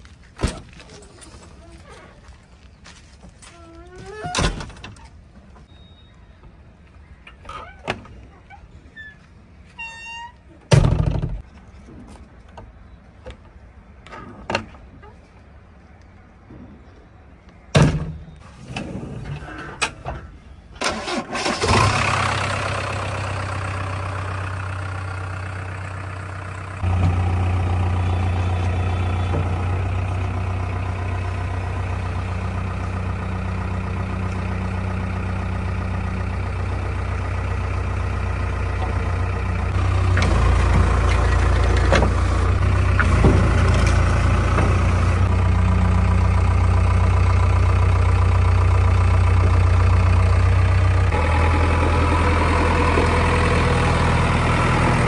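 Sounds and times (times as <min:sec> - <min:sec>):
diesel engine starting and idling: 0:20.7 - 0:55.0.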